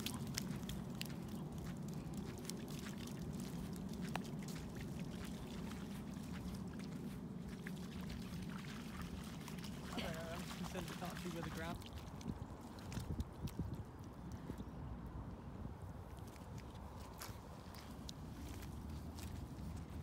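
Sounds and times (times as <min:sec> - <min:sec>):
shallow water splashing: 0:00.0 - 0:13.5.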